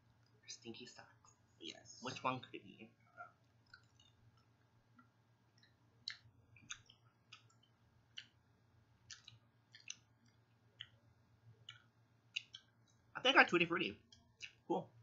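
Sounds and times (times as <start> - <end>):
low steady hum: 0.0 - 15.0
chewing clicks: 3.4 - 8.4, 9.0 - 11.0, 11.6 - 13.0, 14.1 - 14.6.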